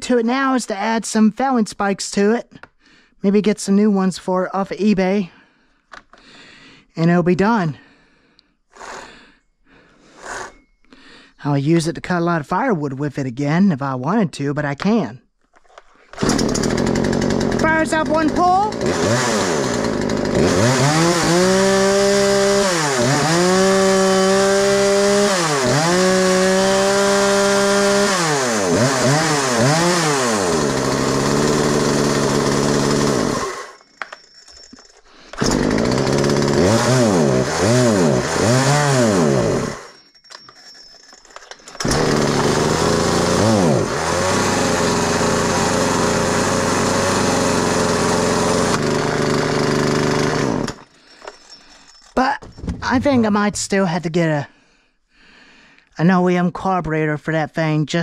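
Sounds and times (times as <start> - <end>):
chainsaw engine revving: 8.8 - 9.1, 10.2 - 10.6, 16.2 - 33.8, 35.4 - 40.0, 41.8 - 50.8.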